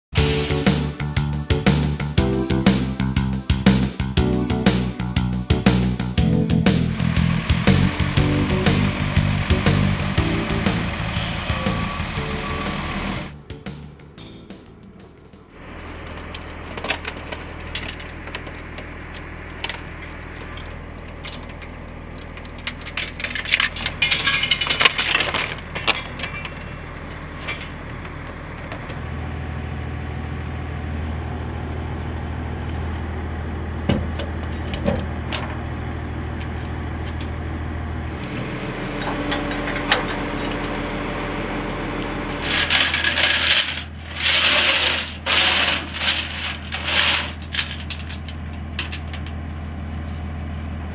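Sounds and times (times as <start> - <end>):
low engine hum: 4.5 - 50.9
chains rattling on metal: 22.8 - 26.5, 42.4 - 49.3.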